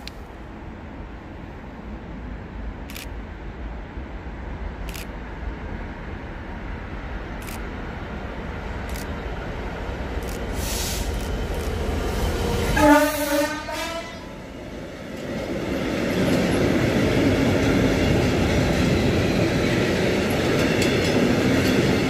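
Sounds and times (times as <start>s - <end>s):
diesel locomotive engine rumble: 0.0s - 22.0s
train horn: 12.7s - 14.4s.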